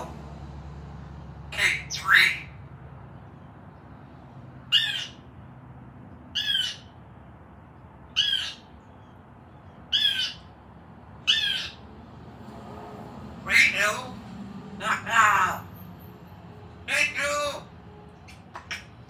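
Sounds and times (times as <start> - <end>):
parrot calling: 1.4 - 3.6, 4.6 - 5.5, 6.2 - 7.2, 8.0 - 12.0, 13.4 - 14.2, 14.8 - 15.9, 16.8 - 19.0.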